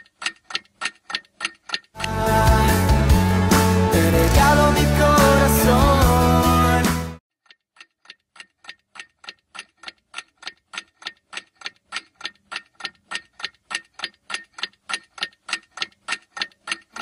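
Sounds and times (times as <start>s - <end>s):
clock ticking: 0.0s - 3.2s, 7.3s - 17.0s.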